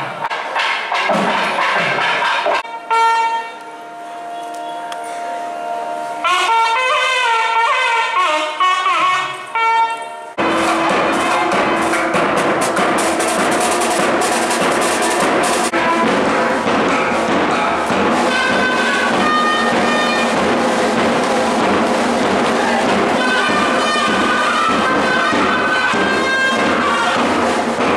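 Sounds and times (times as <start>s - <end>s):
drumming: 0.0s - 2.8s, 10.4s - 27.9s
double-reed pipes melody: 2.6s - 27.8s.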